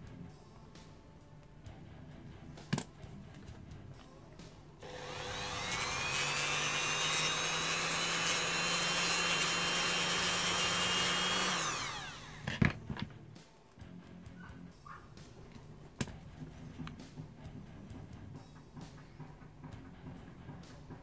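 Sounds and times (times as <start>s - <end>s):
rotary tool whining: 4.8s - 12.6s.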